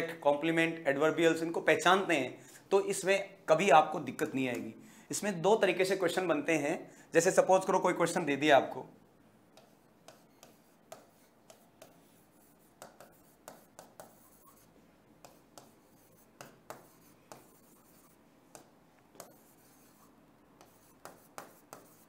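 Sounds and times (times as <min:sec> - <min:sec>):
pen scratching on paper: 0:09.6 - 0:22.0.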